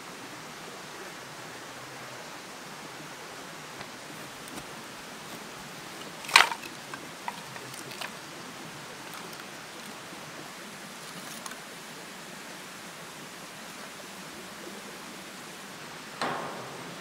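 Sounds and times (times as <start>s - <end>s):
steady background hiss: 0.0s - 17.0s
sticks knocking: 3.8s - 8.1s, 16.2s - 17.0s
firewood clattering: 3.8s - 8.2s, 9.0s - 9.9s, 16.2s - 17.0s.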